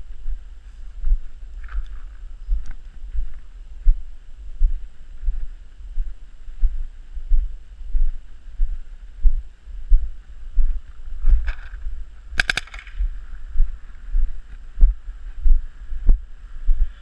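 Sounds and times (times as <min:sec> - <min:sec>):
footsteps on grass: 0:00.0 - 0:08.8
paintball marker firing burst: 0:12.4 - 0:13.1.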